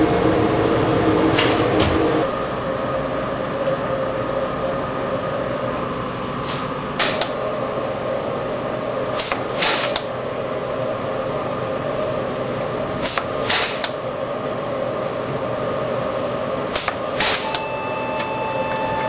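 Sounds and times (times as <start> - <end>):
machine hum: 0.0 - 19.0.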